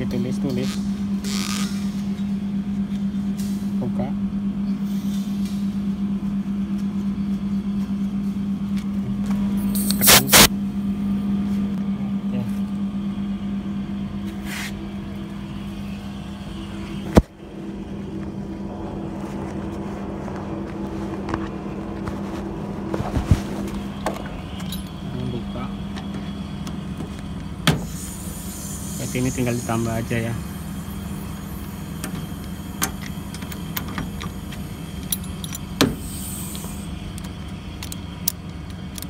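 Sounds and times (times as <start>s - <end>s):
low machine hum: 0.0s - 39.0s
gas hissing from a hose: 9.7s - 10.5s, 27.8s - 33.8s, 35.9s - 36.9s.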